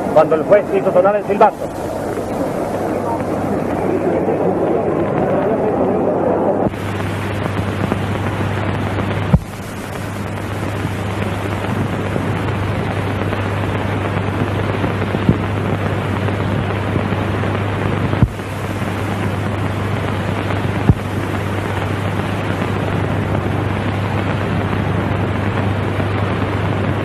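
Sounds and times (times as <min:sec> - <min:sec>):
stadium crowd roar: 0:00.0 - 0:06.8
low hum: 0:00.0 - 0:27.0.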